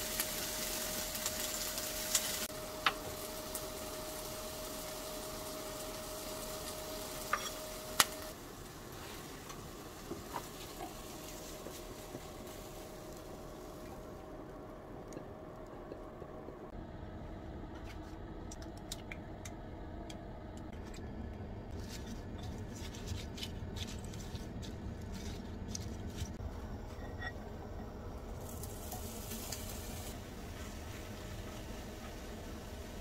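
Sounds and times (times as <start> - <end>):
sizzling in frying pan: 0.0 - 14.5, 28.2 - 33.0.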